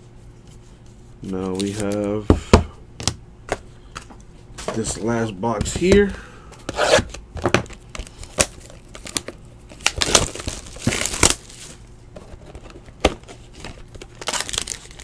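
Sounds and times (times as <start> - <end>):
cardboard and plastic crinkling tearing: 6.8 - 15.0.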